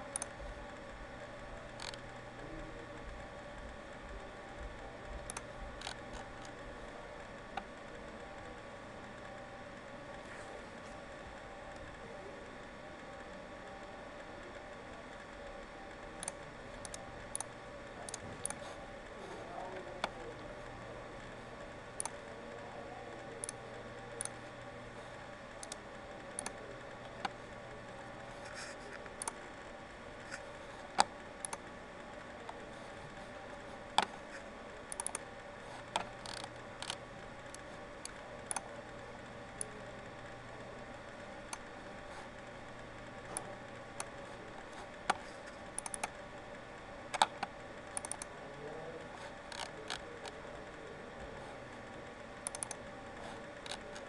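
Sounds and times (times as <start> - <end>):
electrical hum: 0.0 - 54.0
computer mouse clicking: 0.1 - 0.4, 1.7 - 2.1, 5.2 - 6.6, 16.1 - 18.8, 22.0 - 22.3, 23.4 - 23.6, 24.2 - 24.4, 25.6 - 27.4, 28.2 - 29.4, 30.2 - 31.7, 32.5 - 38.7, 43.3 - 46.2, 47.1 - 48.3, 49.2 - 50.4, 52.4 - 54.0.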